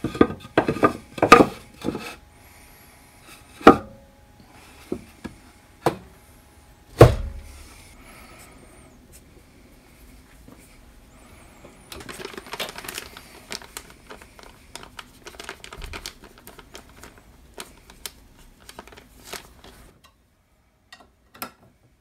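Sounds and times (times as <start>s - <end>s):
plastic bag crinkling: 11.9s - 20.0s.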